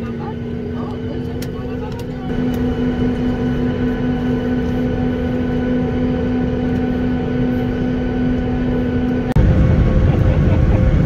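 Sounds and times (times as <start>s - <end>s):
airliner cabin hum: 0.0s - 11.0s
low rumble: 2.3s - 11.0s.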